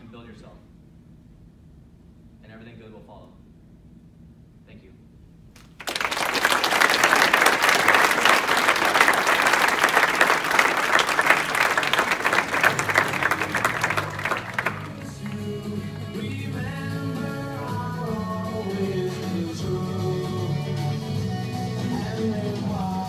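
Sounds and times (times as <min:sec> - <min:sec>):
audience applauding: 0:05.6 - 0:18.0.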